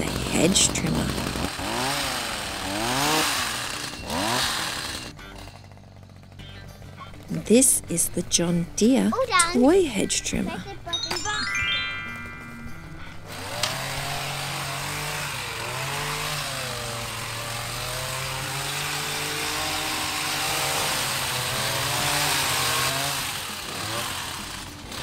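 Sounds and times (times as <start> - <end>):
hedge trimmer cutting hedge: 0.0 - 9.8, 13.2 - 25.0.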